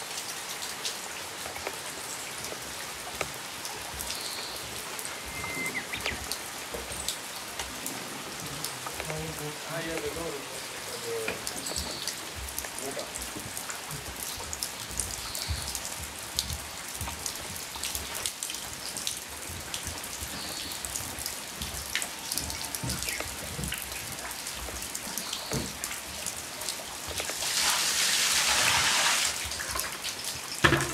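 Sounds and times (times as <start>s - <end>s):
rain falling on leaves: 0.0s - 30.9s
raindrops ticking close by: 0.0s - 30.9s
steady rushing hiss: 1.8s - 18.2s.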